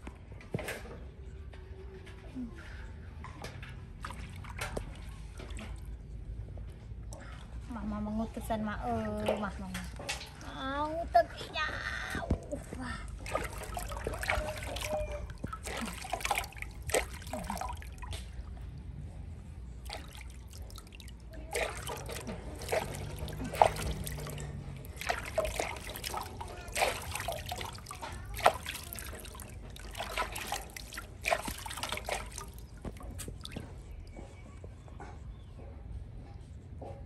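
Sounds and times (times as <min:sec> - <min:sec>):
water splashing in a metal basin: 0:03.3 - 0:07.8, 0:08.5 - 0:11.5, 0:13.0 - 0:34.2.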